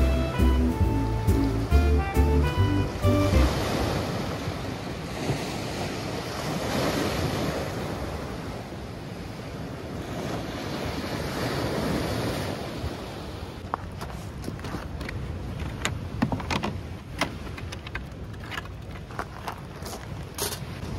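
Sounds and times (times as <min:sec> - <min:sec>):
waves breaking on pebbly shore: 0:03.0 - 0:14.8
wind on microphone: 0:19.7 - 0:20.9.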